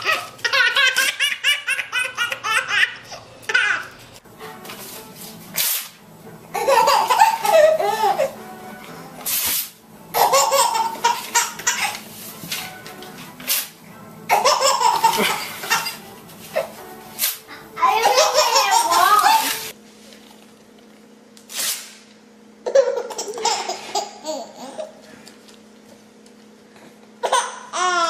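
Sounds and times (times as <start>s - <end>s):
baby laughing hard: 0.0s - 3.9s, 6.5s - 8.4s, 10.1s - 12.0s, 14.3s - 16.0s, 18.0s - 19.7s, 22.6s - 25.0s, 27.2s - 28.0s
paper tearing: 5.5s - 6.0s, 21.5s - 22.0s.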